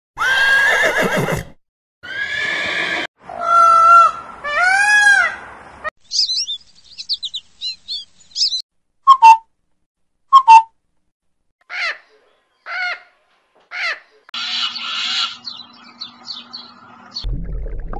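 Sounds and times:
horses neighing: 0.2s - 3.1s
loud bird calls: 3.4s - 8.6s, 11.6s - 17.2s
sparrow chirping: 6.0s - 8.6s, 14.4s - 17.2s.

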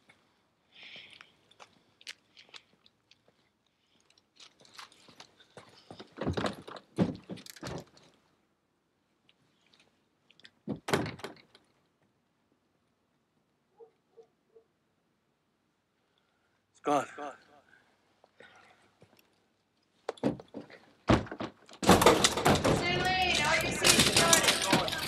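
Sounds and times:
clicks and knocks: 20.1s - 25.0s.

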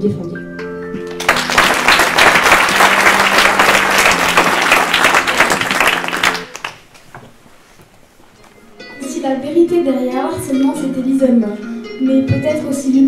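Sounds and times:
audience clapping: 1.0s - 7.2s.

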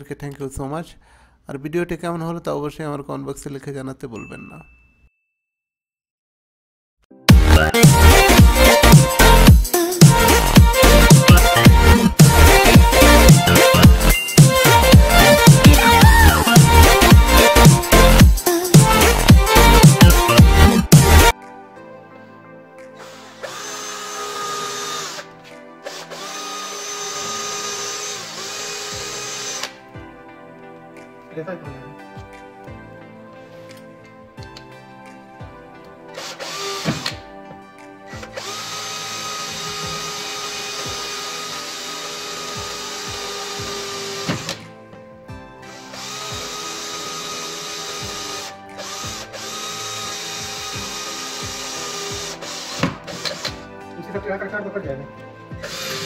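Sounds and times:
cordless drill drilling into metal: 23.0s - 29.8s, 36.2s - 37.2s, 38.2s - 44.6s, 45.6s - 53.6s, 55.6s - 56.0s.

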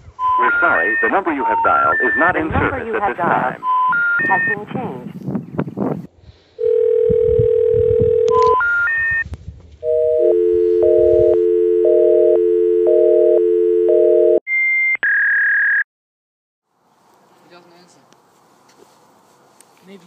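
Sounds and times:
rising three-tone signal: 0.2s - 2.4s, 9.8s - 15.8s
telephone steady tone: 0.2s - 2.4s, 6.6s - 9.2s, 9.8s - 14.4s
short high beeps: 3.6s - 4.6s.

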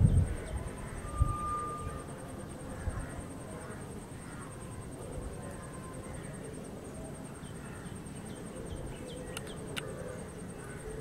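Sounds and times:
insect trill: 0.0s - 11.0s
bird chirps: 7.4s - 9.9s
sharp clicks: 9.3s - 9.9s.

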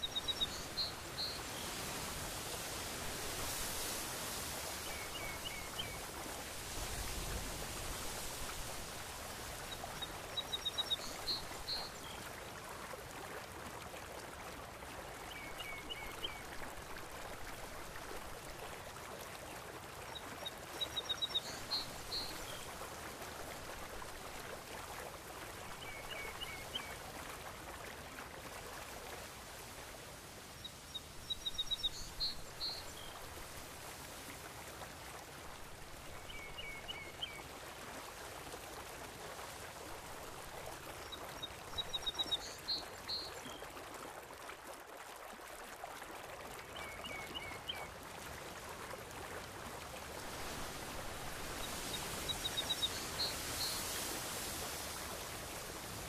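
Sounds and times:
sea waves washing: 0.0s - 11.8s, 49.5s - 56.0s.

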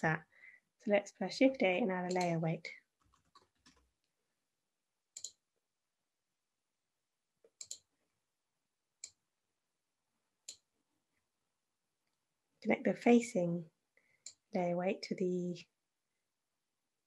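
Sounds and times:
computer mouse clicks: 2.1s - 2.4s, 5.1s - 5.4s, 7.4s - 7.9s, 14.2s - 14.5s.

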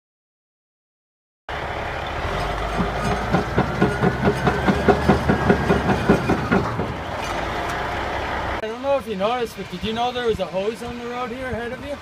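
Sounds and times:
diesel engine running: 1.5s - 8.6s
steel track links clanking: 2.0s - 8.6s.

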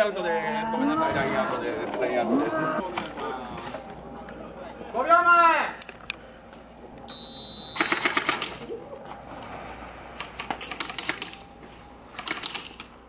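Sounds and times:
high electronic beep: 7.1s - 8.2s
airsoft guns firing bursts: 7.8s - 8.6s.

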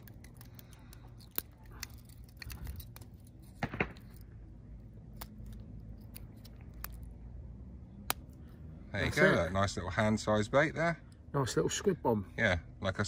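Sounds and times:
small handling clicks and rustles: 0.0s - 4.4s.

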